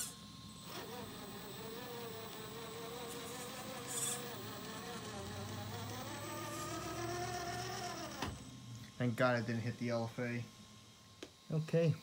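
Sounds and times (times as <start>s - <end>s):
toy truck electric motor whining: 0.0s - 8.6s.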